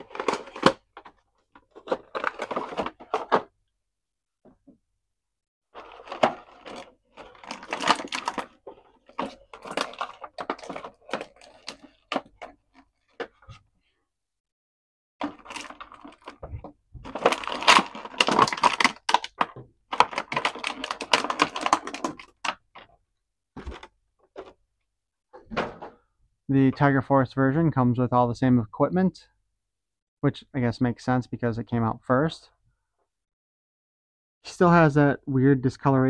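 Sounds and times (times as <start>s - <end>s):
plastic packaging crinkling: 0.0s - 3.4s, 5.8s - 13.2s, 15.2s - 22.8s.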